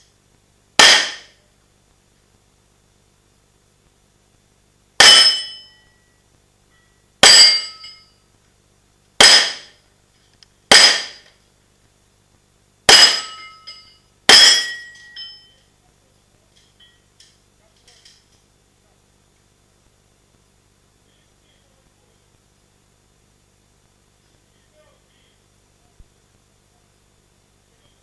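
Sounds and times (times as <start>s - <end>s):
pistol shots with metallic ring: 0.8s - 1.4s, 5.0s - 5.9s, 7.2s - 8.1s, 9.2s - 9.8s, 10.7s - 11.3s, 12.9s - 15.5s.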